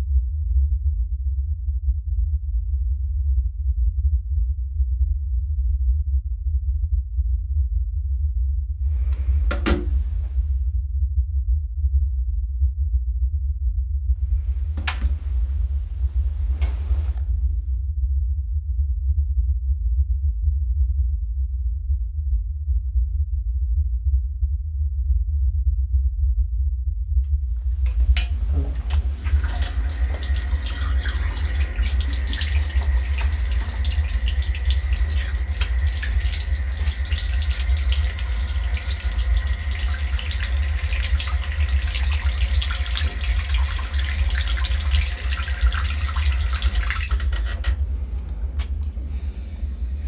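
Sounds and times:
steady low rumble: 0:00.0 - 0:50.0
tap running into sink: 0:08.9 - 0:10.4, 0:14.3 - 0:17.2, 0:27.6 - 0:49.4.

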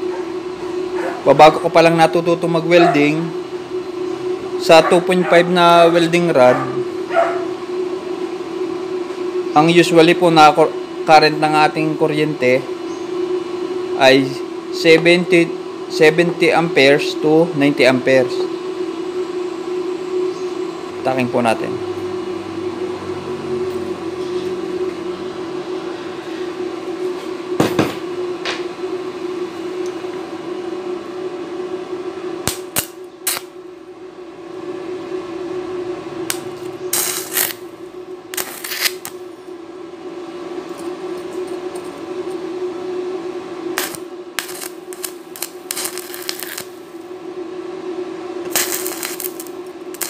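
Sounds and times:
welder steady hum: 0:00.0 - 0:50.0
welding arc crackling: 0:32.4 - 0:33.6, 0:36.3 - 0:39.2, 0:43.8 - 0:47.1, 0:48.4 - 0:50.0.

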